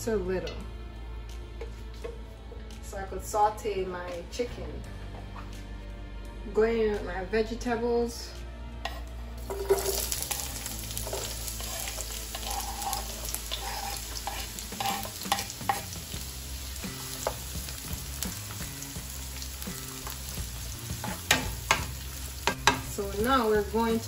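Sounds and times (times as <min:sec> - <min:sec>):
spatula tapping and scraping pan: 0:08.9 - 0:10.4, 0:11.0 - 0:16.0, 0:21.0 - 0:22.9
vegetables sizzling in oil: 0:09.4 - 0:24.0.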